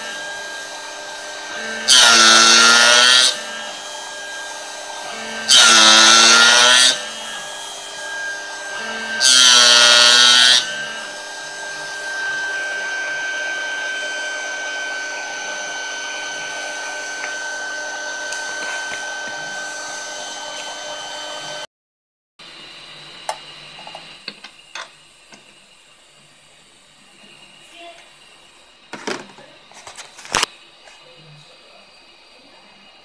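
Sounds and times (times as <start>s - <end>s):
spindle high whine: 0.0s - 21.7s.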